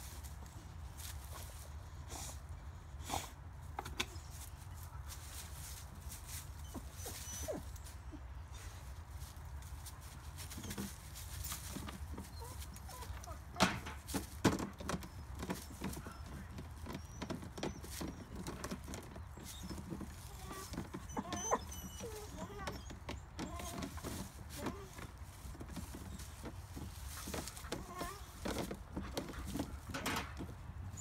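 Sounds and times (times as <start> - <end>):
claws scrabbling on plastic: 9.3 - 31.0.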